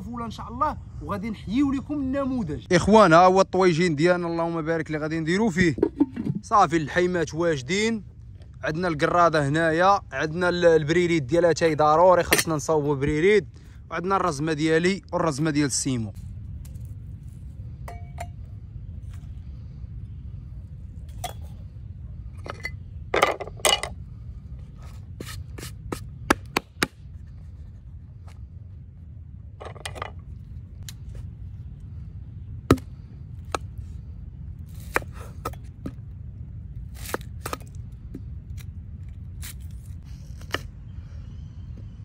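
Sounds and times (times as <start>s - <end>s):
low background rumble: 0.0s - 42.0s.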